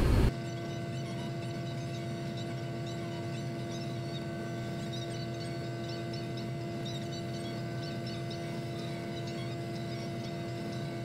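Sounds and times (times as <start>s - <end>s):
diesel engine droning: 0.0s - 0.3s.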